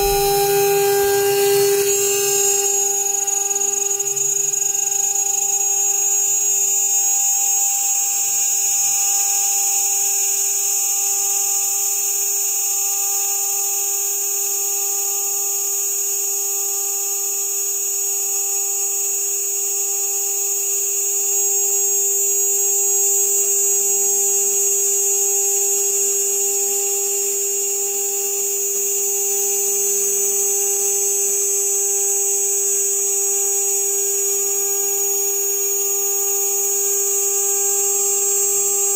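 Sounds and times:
router spindle whining: 0.0 - 6.4.

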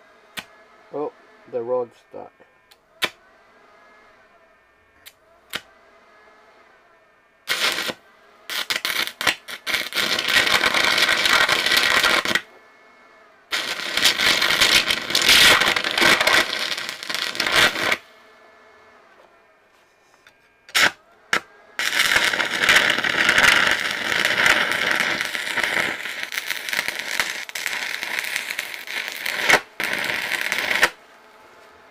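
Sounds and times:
welding arc crackling and hissing: 7.5 - 12.4, 13.5 - 18.0, 20.7 - 31.4.

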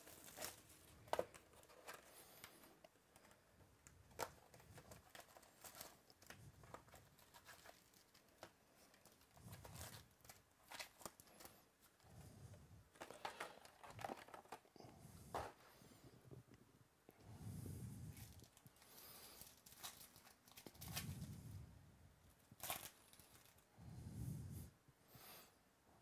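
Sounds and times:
wrapped card packs crinkling: 0.0 - 12.0, 12.9 - 14.8, 18.2 - 21.3, 22.5 - 23.7.

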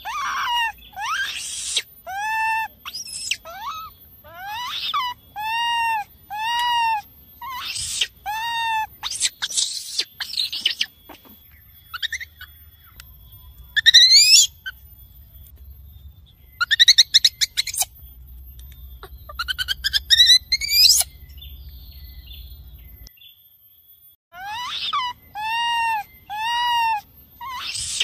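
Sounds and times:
baby macaque calling: 0.0 - 13.0, 13.7 - 14.8, 16.6 - 17.9, 19.0 - 21.2, 24.4 - 28.0.

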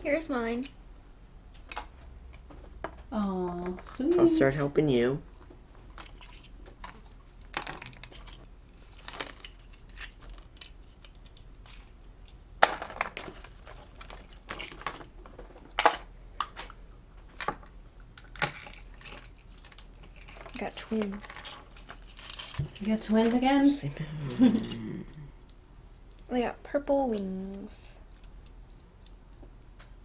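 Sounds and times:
plastic toy eggs cracking open: 6.0 - 12.0, 18.2 - 21.1.

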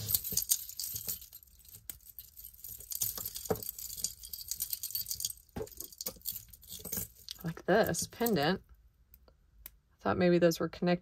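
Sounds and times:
jewelry clinking and rattling: 0.0 - 8.6.

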